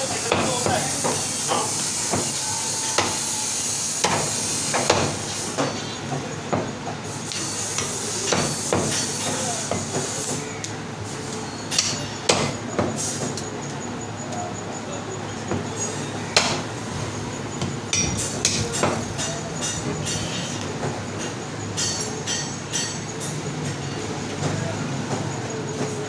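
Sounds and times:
cleaver chopping on wooden block: 0:16.4 - 0:16.6.

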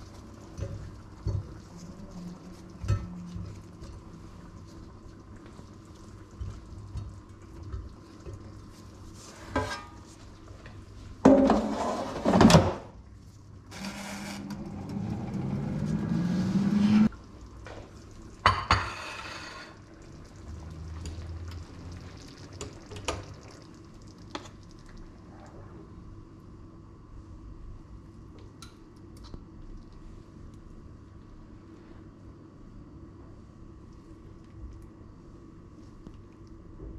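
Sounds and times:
vessel filling with liquid: 0:19.3 - 0:25.7.

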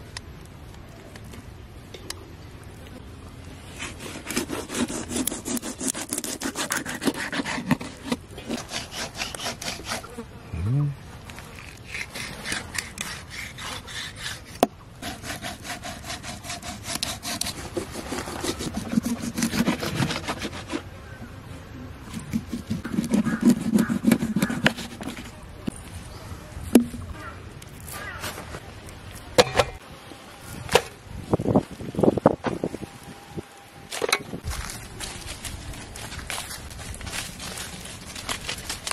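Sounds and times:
knife scraping fish on board: 0:03.8 - 0:10.1, 0:11.6 - 0:20.8, 0:22.1 - 0:25.3
low tone: 0:10.5 - 0:11.0.

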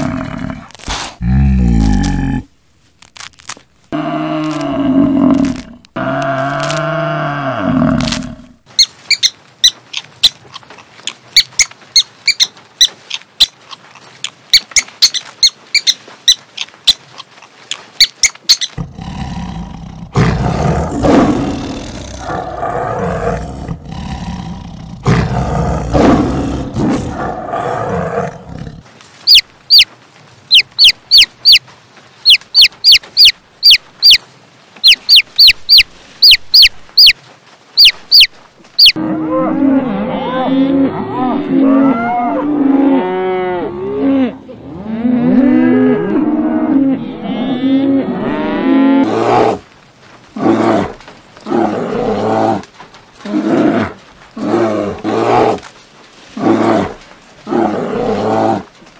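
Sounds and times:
tiger growling and roaring: 0:00.0 - 0:02.5, 0:18.8 - 0:28.9, 0:50.3 - 0:55.7, 0:56.3 - 0:58.8.

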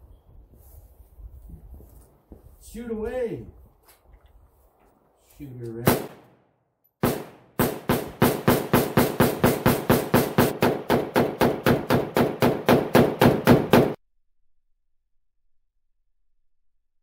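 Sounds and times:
rifle shots: 0:05.8 - 0:06.4, 0:07.0 - 0:14.0.

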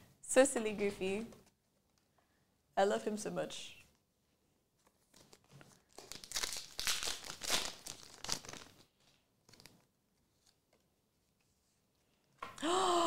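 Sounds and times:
foil wrapper crinkling and tearing: 0:05.0 - 0:09.9.

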